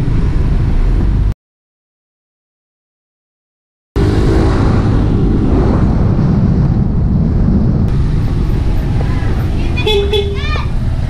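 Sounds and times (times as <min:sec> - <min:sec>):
wind rumbling on microphone: 0:00.0 - 0:01.3, 0:04.0 - 0:11.0.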